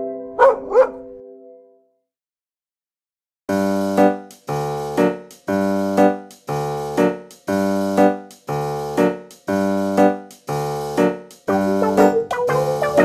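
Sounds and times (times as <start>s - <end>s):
keyboard chords repeating: 3.5s - 13.0s.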